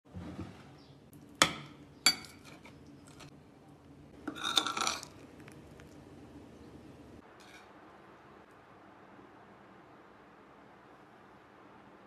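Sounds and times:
cutlery clinking on dishes: 0:01.4 - 0:03.3, 0:04.3 - 0:05.2
fork scraping on a plate: 0:04.3 - 0:05.1.

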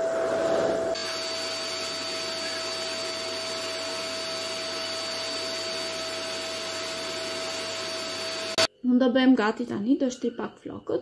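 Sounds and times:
vacuum cleaner running on carpet: 0:00.0 - 0:08.7.

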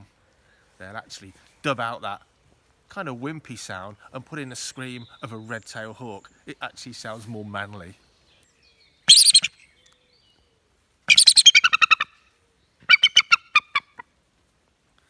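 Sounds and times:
eagle chattering call: 0:09.1 - 0:09.6, 0:11.1 - 0:12.1, 0:12.8 - 0:14.0.

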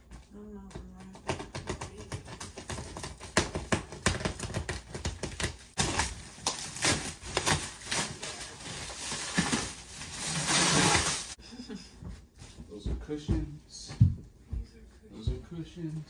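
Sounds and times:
plastic wrap crinkling: 0:04.1 - 0:11.4
plastic wrap ripping: 0:05.7 - 0:11.4.

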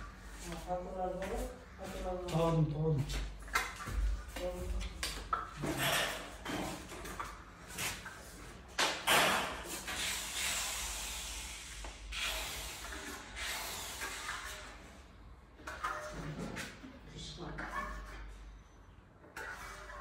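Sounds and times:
trowel scraping plaster: 0:19.3 - 0:20.0.

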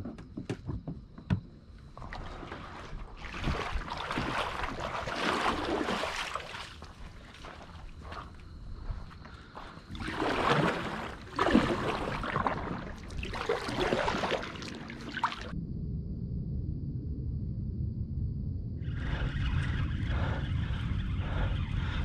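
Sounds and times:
steady low hum: 0:01.4 - 0:22.0
paddle splashing through water: 0:02.0 - 0:15.5.

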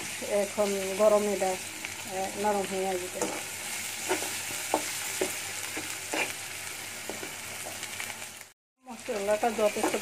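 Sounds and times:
masala sizzling in hot oil: 0:00.0 - 0:10.0
spatula scraping a pan: 0:03.2 - 0:06.4.

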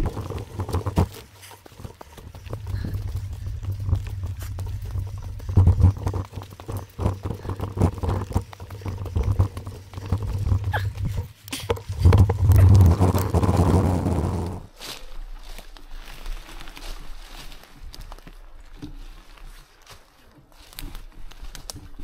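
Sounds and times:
bike rattling over bumps: 0:00.0 - 0:14.8
bike tyres crunching through leaves: 0:00.0 - 0:22.0
low microphone rumble: 0:02.4 - 0:14.8.

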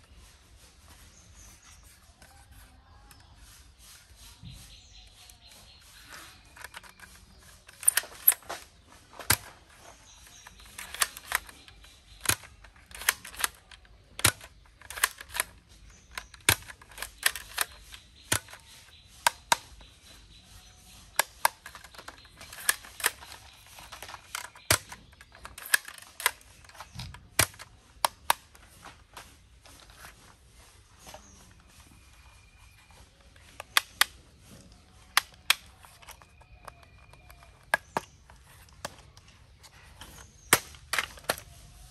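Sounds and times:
plastic toy blaster clicking: 0:06.0 - 0:08.6, 0:09.2 - 0:19.8, 0:20.9 - 0:28.5, 0:33.4 - 0:34.2, 0:35.0 - 0:39.2, 0:40.0 - 0:41.5.

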